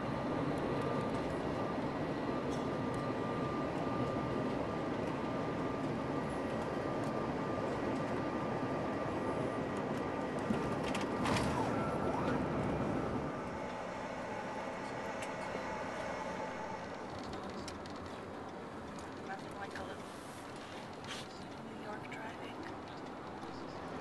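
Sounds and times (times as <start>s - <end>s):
runway rolling noise: 0.0s - 24.0s
jet engines rushing: 0.1s - 17.5s.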